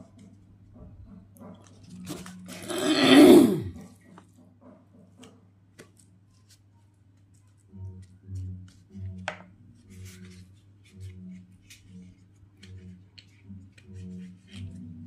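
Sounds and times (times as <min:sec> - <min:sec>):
leaf crackling as it is folded: 0:05.8 - 0:14.8.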